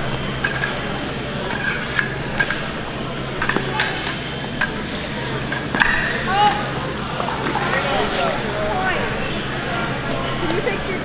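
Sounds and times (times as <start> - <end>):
fencing blades clinking: 0.4 - 8.6.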